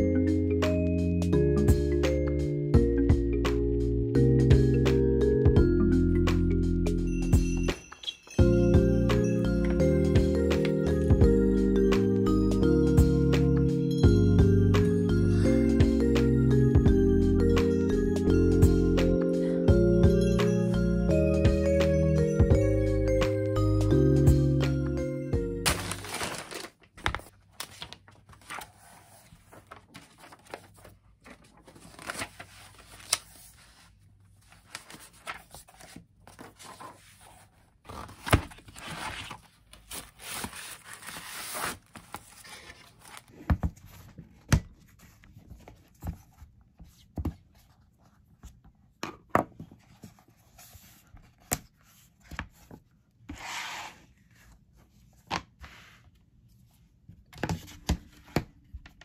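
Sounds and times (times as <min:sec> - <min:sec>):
cardboard and paper rustling: 0:25.6 - 0:48.7.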